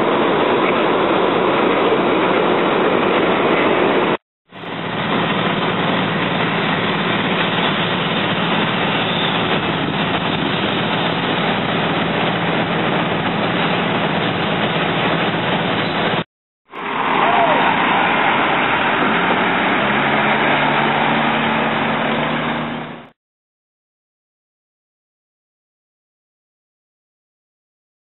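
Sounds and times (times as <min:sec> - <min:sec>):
vehicle engine running: 0:02.7 - 0:23.1.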